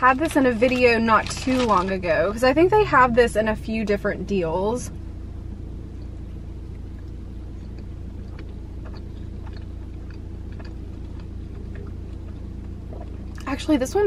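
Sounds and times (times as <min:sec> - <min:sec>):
car cabin hum: 0:00.0 - 0:14.0
food packaging clicks and rustles: 0:00.1 - 0:02.1.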